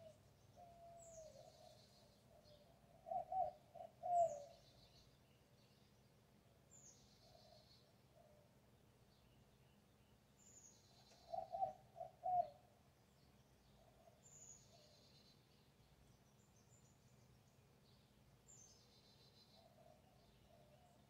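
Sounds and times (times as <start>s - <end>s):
loud low bird calls: 0.0s - 5.0s, 10.5s - 12.6s
birds singing trills: 0.0s - 21.0s.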